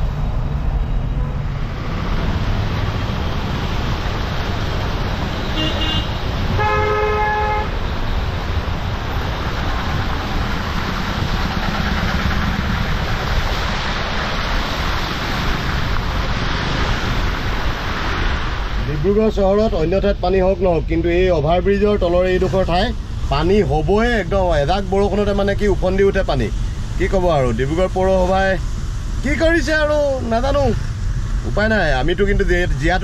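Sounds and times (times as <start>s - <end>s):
traffic: 0.0s - 33.0s
low horn blast: 5.4s - 7.8s
short high vehicle horn: 5.4s - 7.8s
car driving through water: 7.9s - 19.4s.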